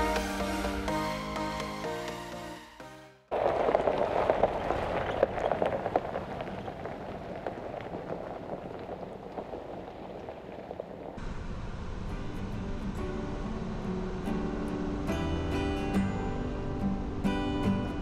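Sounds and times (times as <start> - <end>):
tyres crunching over gravel: 3.3 - 11.2.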